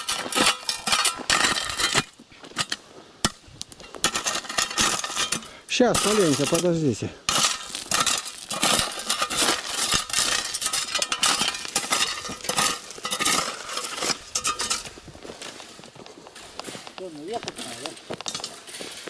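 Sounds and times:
footsteps crunching on gravel: 6.0s - 19.0s
footsteps through dry brush: 7.6s - 19.0s.

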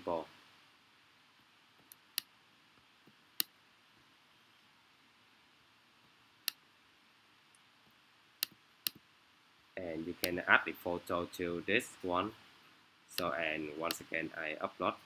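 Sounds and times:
computer mouse clicking: 8.4s - 9.0s.

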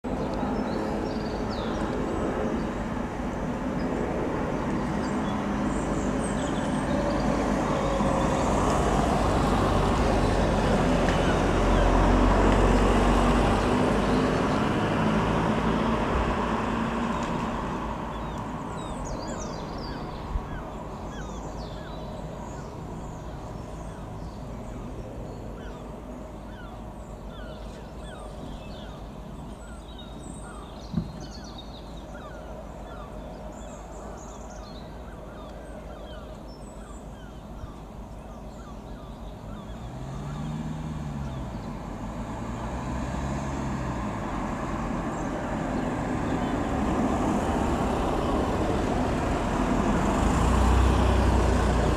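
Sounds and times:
helicopter rotor and engine: 0.1s - 10.8s
faint bird calls: 25.4s - 41.4s.

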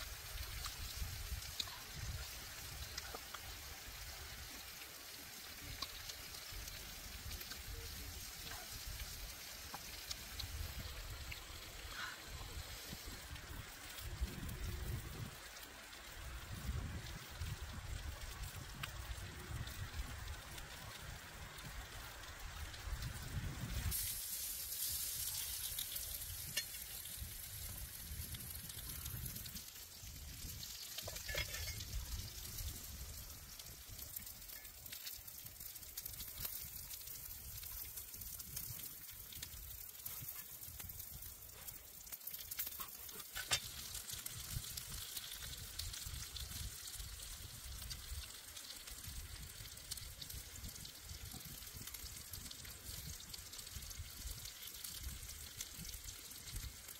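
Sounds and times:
meat sizzling on hot stone: 0.0s - 56.9s.

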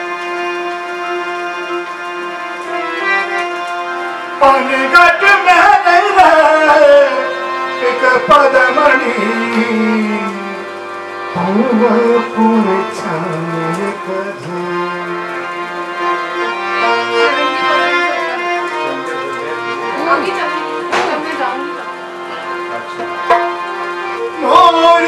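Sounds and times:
harmonium drone: 0.0s - 25.0s
man singing folk song: 4.4s - 10.7s, 11.3s - 15.5s, 24.3s - 25.0s
hand drum strokes: 22.9s - 23.7s.

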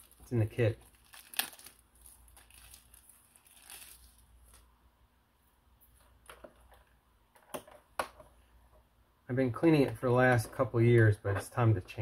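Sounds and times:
plastic wrapper crinkling: 0.0s - 4.7s.

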